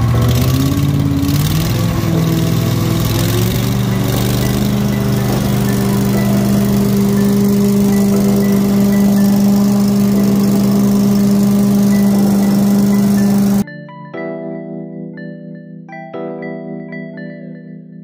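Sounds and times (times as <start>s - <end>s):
engine running at steady speed: 0.0s - 13.6s.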